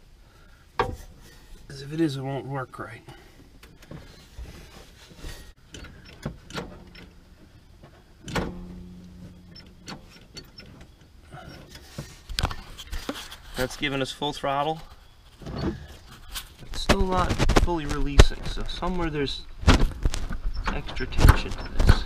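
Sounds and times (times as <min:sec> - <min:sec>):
metal clicks and knocks: 0:05.6 - 0:13.1.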